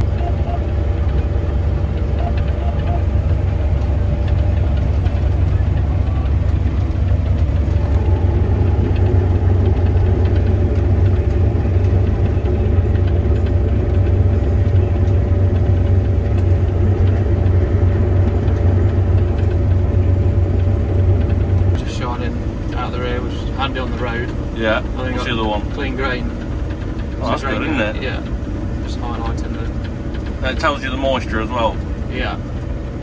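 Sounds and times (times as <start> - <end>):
combine harvester drone: 0.0 - 33.0
constant machine whine: 0.0 - 33.0.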